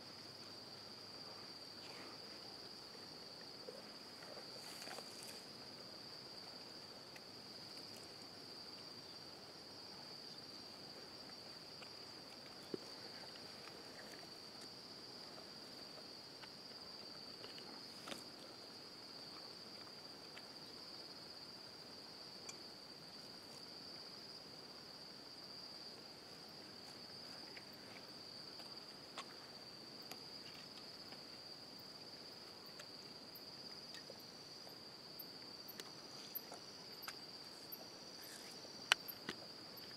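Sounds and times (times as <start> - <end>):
crickets chirring: 0.0 - 39.9.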